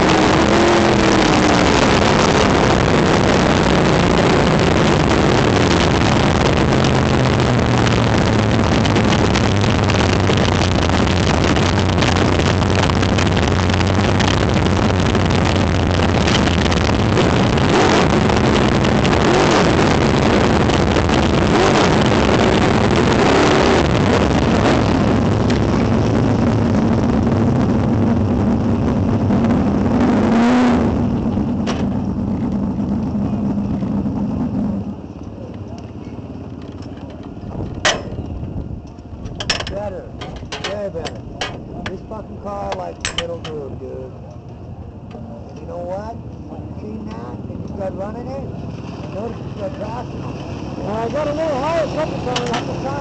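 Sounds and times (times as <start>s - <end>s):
race car engine running: 0.0s - 53.0s.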